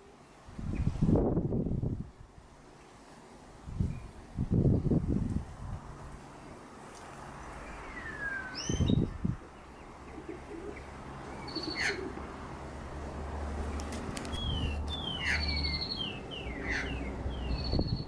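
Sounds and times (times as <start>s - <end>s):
magpies calling: 7.8s - 9.0s, 9.8s - 12.2s, 14.3s - 18.0s.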